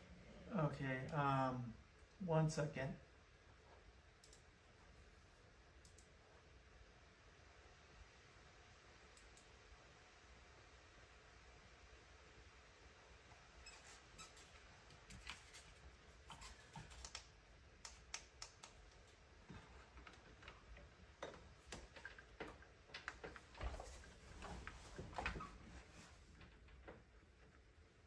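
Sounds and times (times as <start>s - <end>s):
keyboard and mouse clicks: 4.2s - 4.5s, 5.8s - 6.1s, 15.0s - 23.5s.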